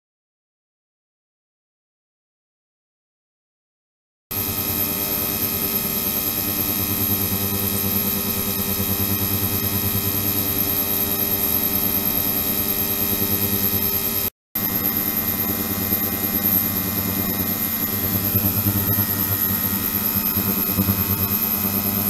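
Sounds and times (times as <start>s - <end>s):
ultrasonic transducer buzzing hum: 4.3s - 22.0s.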